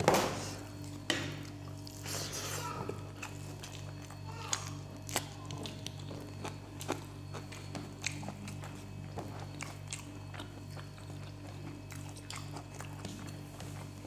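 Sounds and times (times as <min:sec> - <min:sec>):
steady low hum: 0:00.0 - 0:14.0
chewing and mouth clicks: 0:03.1 - 0:14.0.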